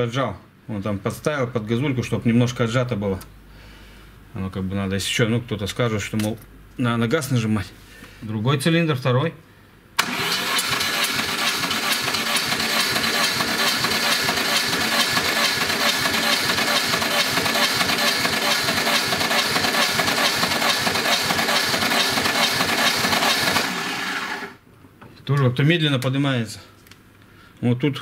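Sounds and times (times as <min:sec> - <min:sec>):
starter motor cranking engine: 0:10.0 - 0:24.6
mechanic talking: 0:25.2 - 0:26.7.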